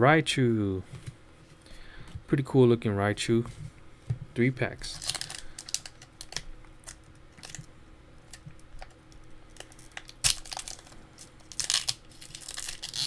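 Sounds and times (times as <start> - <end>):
foil wrapper crinkling and tearing: 4.8 - 13.0.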